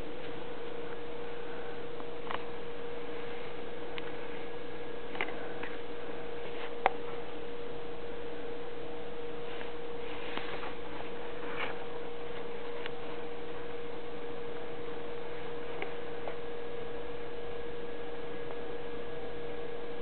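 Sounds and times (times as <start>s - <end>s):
constant hiss: 0.0s - 20.0s
steady electrical hum: 0.0s - 20.0s
faint rustles: 9.4s - 13.8s.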